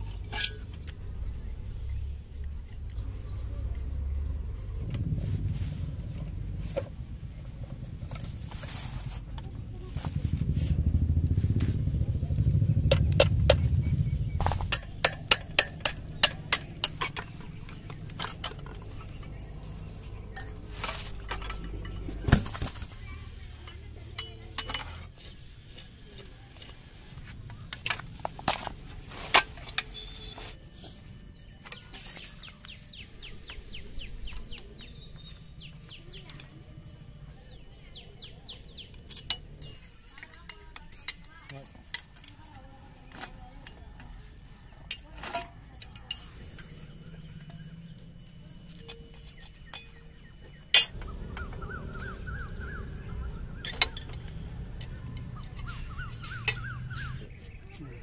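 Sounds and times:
low rumble: 0.0 - 24.0
metal parts clinking and knocking: 14.4 - 19.4, 20.3 - 23.0, 23.6 - 25.4, 38.8 - 43.8, 48.6 - 51.2, 53.4 - 56.8.

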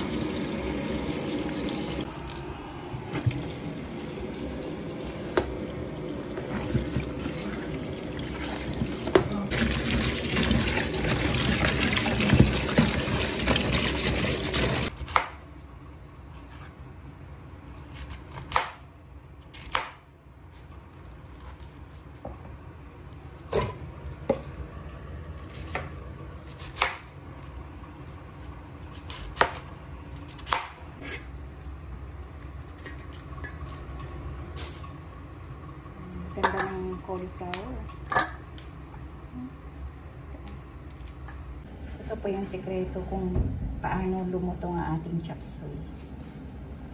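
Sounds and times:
tap water running into sink: 0.0 - 2.4, 3.0 - 14.9.

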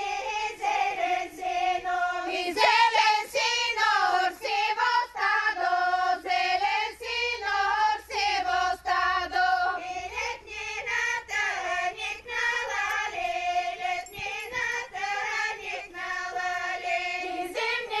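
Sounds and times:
women singing folk song: 0.0 - 18.0.

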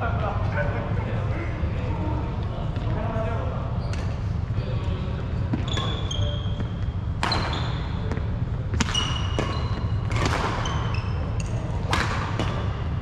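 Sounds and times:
steady low hum: 0.0 - 13.0
racket hitting shuttlecock: 6.6 - 12.8.

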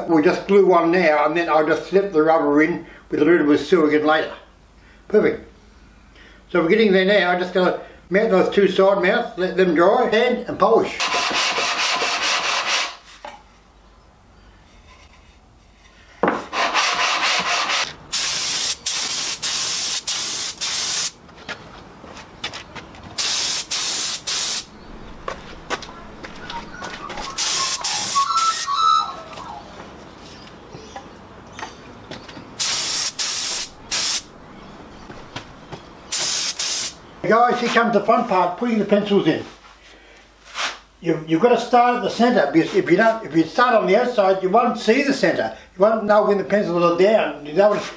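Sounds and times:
hand sanding with sandpaper: 11.0 - 13.2, 16.5 - 21.2, 23.2 - 24.7, 27.2 - 28.7, 40.4 - 40.8
spray gun hissing: 18.1 - 21.2, 23.2 - 24.7, 27.4 - 28.6, 32.6 - 34.3, 36.1 - 37.0.

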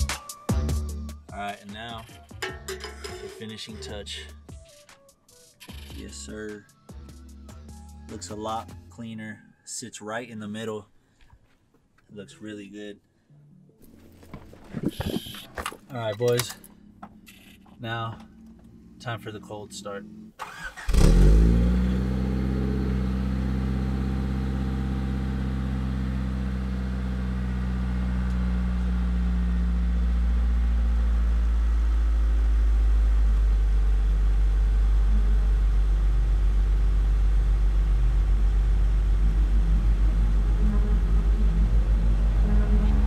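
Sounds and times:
car engine starting and idling: 13.8 - 43.0.

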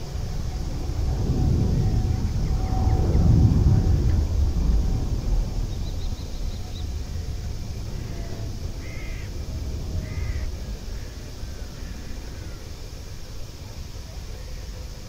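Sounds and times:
low rumble: 0.0 - 12.8
crow cawing: 8.0 - 9.4, 10.0 - 11.2.

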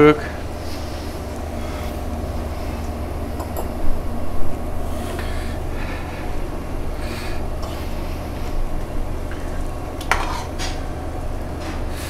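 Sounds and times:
steady low hum: 0.0 - 12.0
whisk stirring in metal bowl: 9.5 - 10.8.

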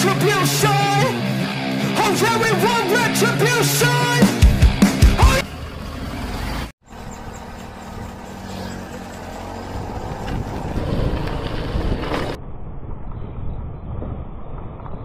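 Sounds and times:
car engine running: 4.4 - 12.4.

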